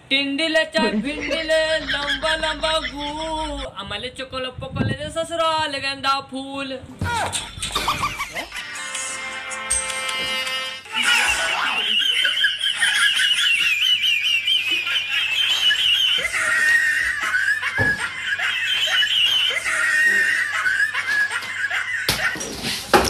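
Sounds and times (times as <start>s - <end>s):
high-pitched quavering laughter: 0.8s - 3.7s, 10.9s - 22.4s.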